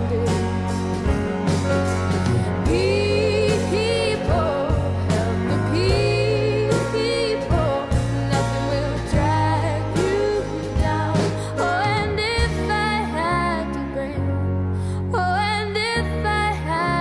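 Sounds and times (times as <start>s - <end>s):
bass notes: 0.0s - 17.0s
person singing: 2.4s - 14.3s.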